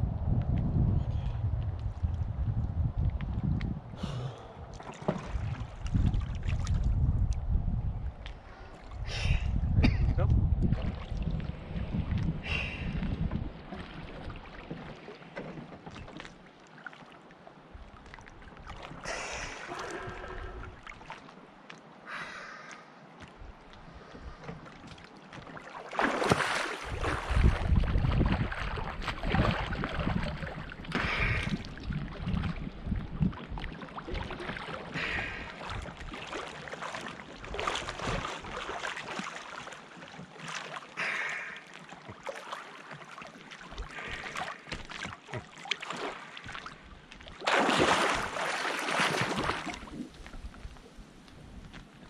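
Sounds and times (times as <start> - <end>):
water splashing from swimmer: 4.7 - 7.0, 24.6 - 50.5.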